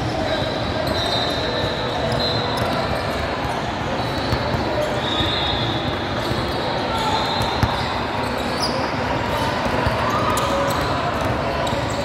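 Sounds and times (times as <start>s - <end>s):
hubbub of voices: 0.0s - 12.0s
basketball bouncing on court: 2.6s - 12.0s.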